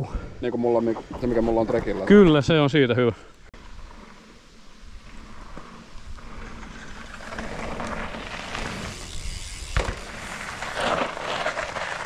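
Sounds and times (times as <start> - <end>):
bike tyres rolling on dirt: 0.4 - 12.0
heavy thud of bike landing: 9.7 - 11.1.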